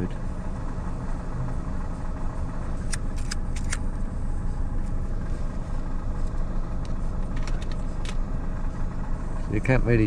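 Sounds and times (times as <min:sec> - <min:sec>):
car engine rumbling at low revs: 0:00.0 - 0:10.0
sharp clicks: 0:02.8 - 0:03.9.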